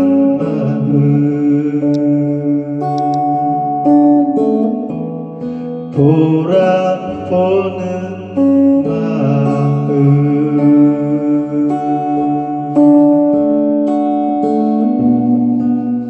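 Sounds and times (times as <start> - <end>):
man singing: 0.0 - 3.9, 5.9 - 13.3
electric guitar: 0.0 - 16.0.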